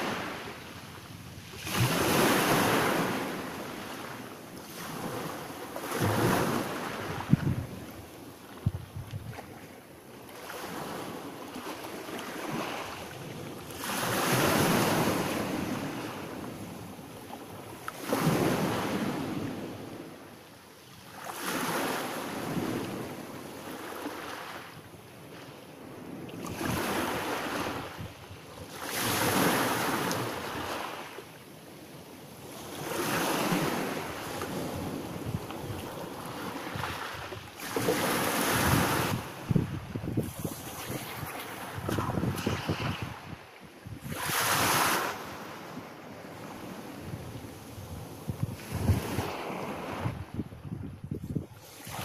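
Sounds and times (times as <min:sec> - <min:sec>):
waves washing on pebble beach: 0:01.4 - 0:07.9, 0:11.8 - 0:16.7, 0:32.5 - 0:43.2, 0:44.0 - 0:45.4.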